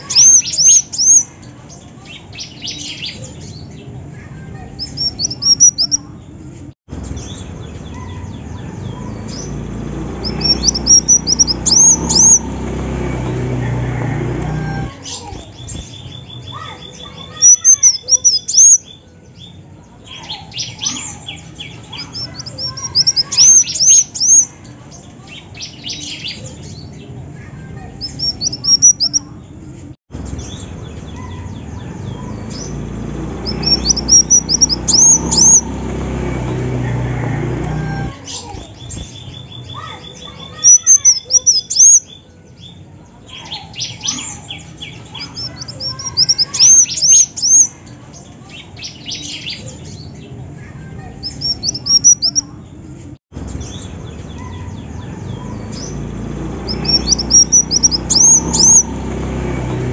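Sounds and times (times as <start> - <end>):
bird twittering chirps: 0.0 - 3.9, 4.8 - 6.2, 7.0 - 13.4, 14.8 - 27.1, 28.0 - 29.4, 30.3 - 36.2, 38.0 - 42.8, 43.4 - 50.2, 51.2 - 52.6, 53.4 - 59.9.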